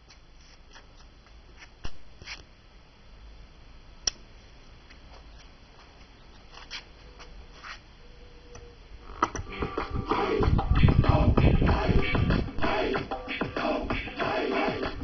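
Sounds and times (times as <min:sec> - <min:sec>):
crackly radio broadcast: 0:05.4 - 0:15.0.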